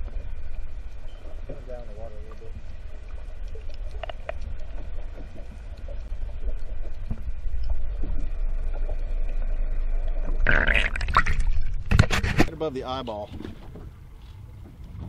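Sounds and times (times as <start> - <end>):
underwater rumble: 0.0 - 15.0
faint clicks: 2.3 - 9.4.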